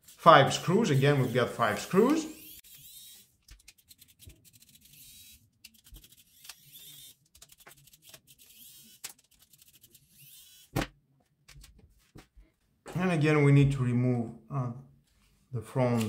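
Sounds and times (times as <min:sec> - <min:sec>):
screwdriver clicking and scraping: 0:00.7 - 0:10.7.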